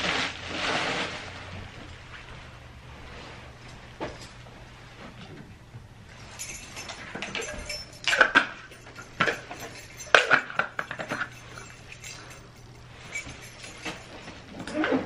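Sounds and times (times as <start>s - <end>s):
metal mug clinking: 6.2s - 14.9s.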